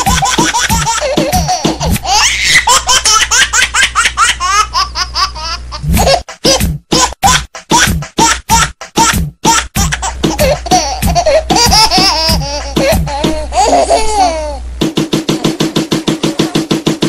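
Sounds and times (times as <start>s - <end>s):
background music with a beat: 0.0s - 2.2s, 5.8s - 13.9s, 14.8s - 17.0s
person laughing: 0.0s - 3.2s, 5.2s - 8.4s, 9.8s - 14.6s.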